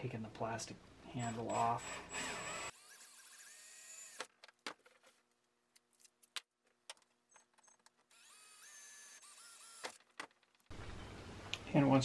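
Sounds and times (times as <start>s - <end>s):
cordless drill drilling metal: 1.2s - 4.3s, 8.1s - 10.0s.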